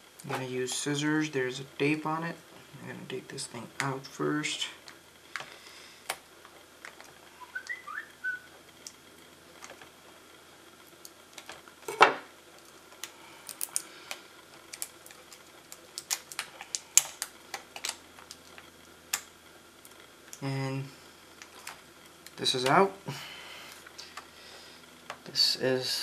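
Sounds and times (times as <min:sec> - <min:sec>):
tape peeling and cable clicks: 0:12.6 - 0:20.5.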